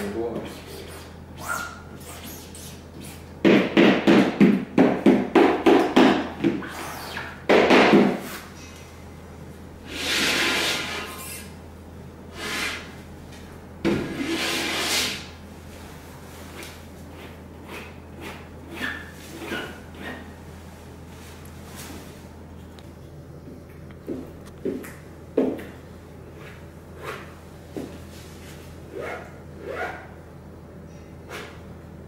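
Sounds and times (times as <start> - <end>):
squeegee scraping through paint: 9.9 - 11.5, 14.1 - 15.3.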